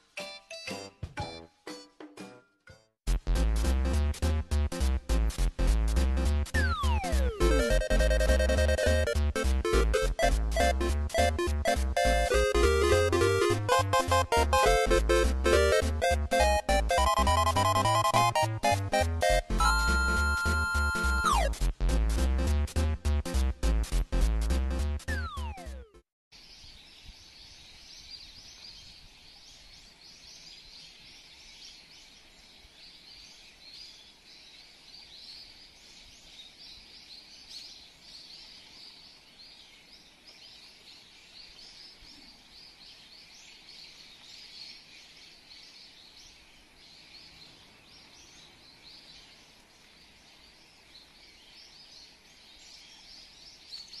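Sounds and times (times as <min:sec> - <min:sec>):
small birds chirping: 0:26.4 - 0:54.0.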